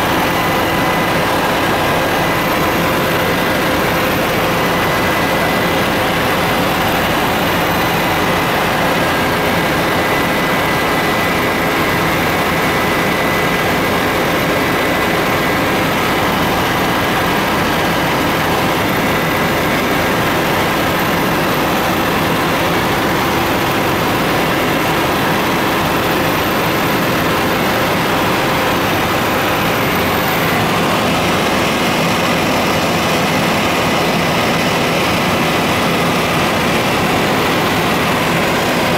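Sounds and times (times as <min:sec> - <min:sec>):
helicopter engine and rotor drone: 0:00.0 - 0:38.9.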